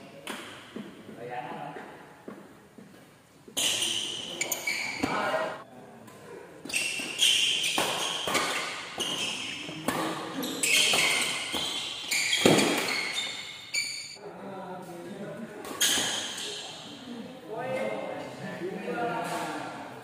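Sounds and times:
racket hitting shuttlecock: 0:06.8 - 0:13.2.

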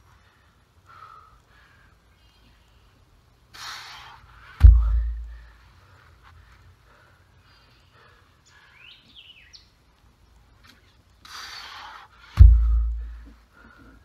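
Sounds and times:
birds chirping: 0:00.3 - 0:03.5, 0:04.4 - 0:11.2
heavy object thudding on ground: 0:04.6 - 0:05.3, 0:12.4 - 0:13.2.

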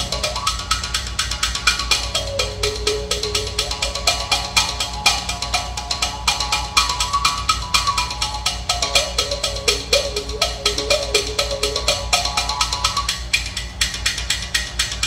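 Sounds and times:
mouth bow plucking with overtone melody: 0:01.7 - 0:13.2.

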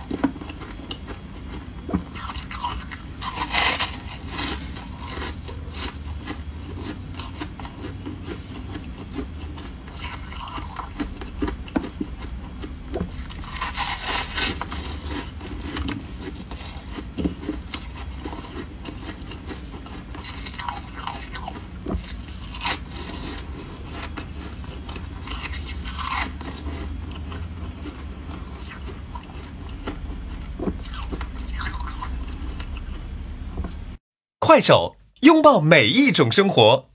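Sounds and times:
chewing crunchy frost: 0:00.0 - 0:33.8.

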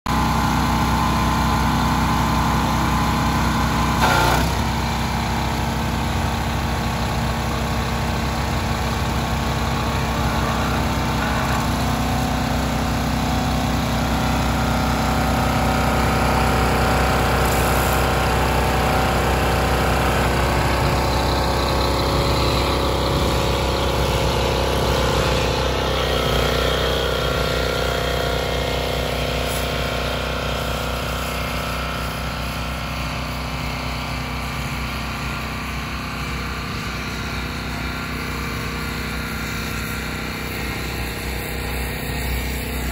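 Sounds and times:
pressure washer engine running: 0:00.1 - 0:42.9
hiss of water spray: 0:17.1 - 0:18.8, 0:26.0 - 0:33.7.

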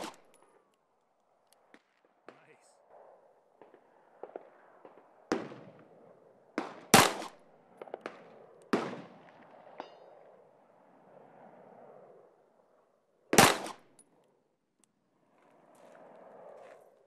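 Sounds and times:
pistol shots: 0:00.0 - 0:00.2, 0:06.6 - 0:09.1, 0:13.4 - 0:13.9.

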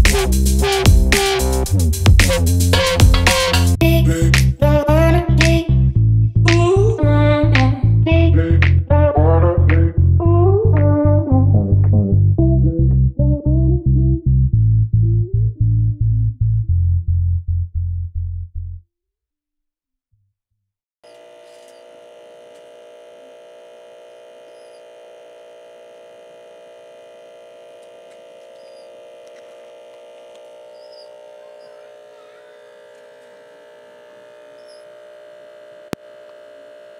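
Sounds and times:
steady electrical hum: 0:21.1 - 0:36.9
faint high chirps: 0:24.5 - 0:24.9, 0:30.7 - 0:32.8.

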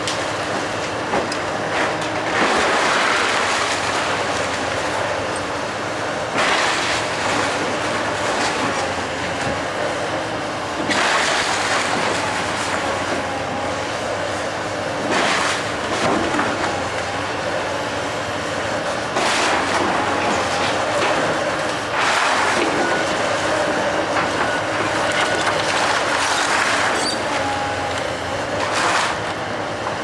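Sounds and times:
wood splintering and cracking: 0:00.0 - 0:05.5, 0:06.2 - 0:09.6, 0:10.8 - 0:13.4, 0:15.0 - 0:17.1, 0:19.1 - 0:29.4
excavator diesel engine: 0:00.0 - 0:30.0
falling debris: 0:01.8 - 0:04.8, 0:10.8 - 0:13.1, 0:19.1 - 0:27.0.

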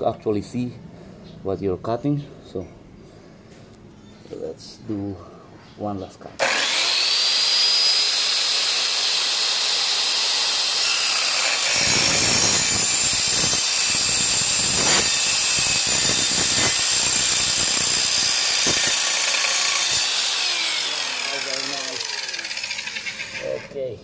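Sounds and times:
circular saw whining: 0:06.4 - 0:23.8
grinding of metal cutting: 0:06.4 - 0:23.8.

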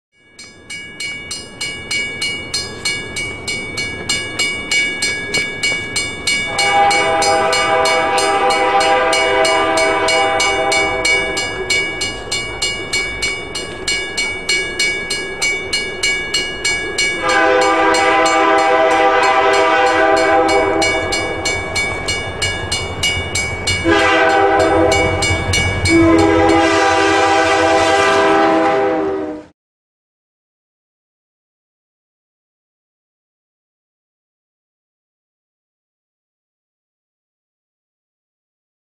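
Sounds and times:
crossing bell ringing: 0:00.2 - 0:28.0
locomotive air horn: 0:06.5 - 0:11.8, 0:17.2 - 0:21.7, 0:23.8 - 0:29.5.

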